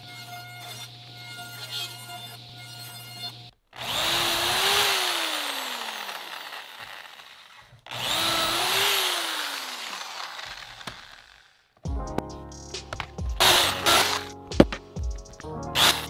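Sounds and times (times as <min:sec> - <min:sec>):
electric drill boring into wood: 0:00.0 - 0:11.6, 0:13.4 - 0:14.3, 0:15.8 - 0:16.0.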